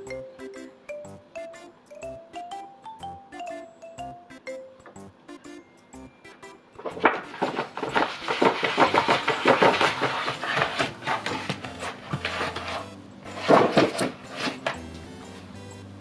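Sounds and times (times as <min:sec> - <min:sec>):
paper booklet rustling: 0:06.8 - 0:14.8.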